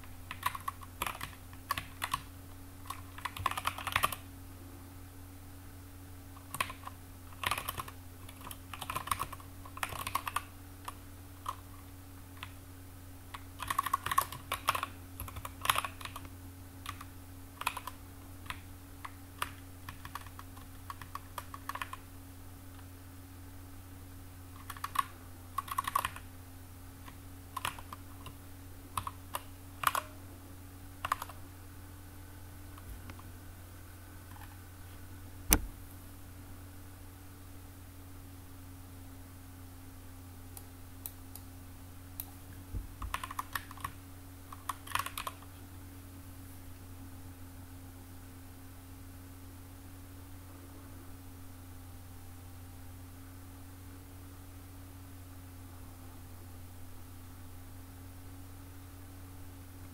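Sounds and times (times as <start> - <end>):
steady low hum: 0.0 - 59.9
typing on keyboard: 0.3 - 4.2, 6.4 - 11.6, 13.3 - 22.0, 24.6 - 26.2, 27.0 - 28.4, 29.0 - 30.1, 31.0 - 31.4, 43.0 - 45.5.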